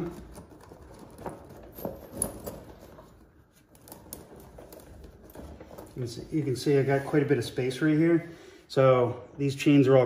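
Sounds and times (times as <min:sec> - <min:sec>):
tire chains clinking: 0:00.0 - 0:06.9.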